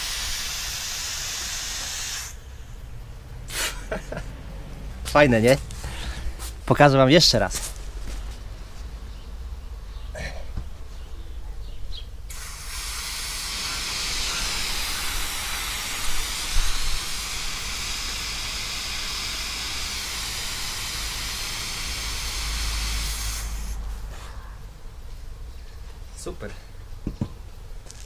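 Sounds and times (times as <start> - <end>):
gas hissing from cylinder valve: 0.0 - 2.7, 12.3 - 24.2.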